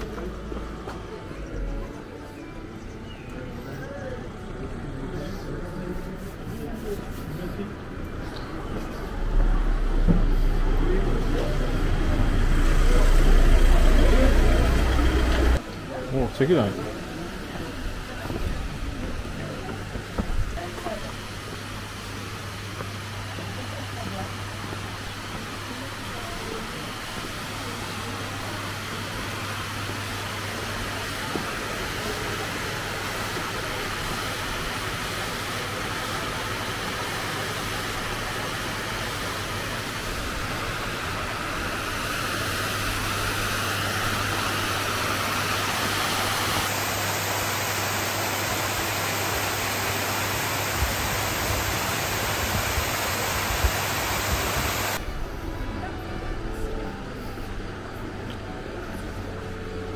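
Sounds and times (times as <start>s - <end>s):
water rushing over a weir: 25.2s - 55.1s.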